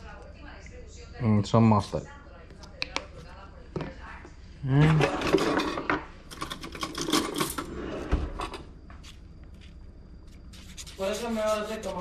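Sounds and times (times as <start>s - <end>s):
cutlery clinking in a drawer: 4.9s - 7.7s.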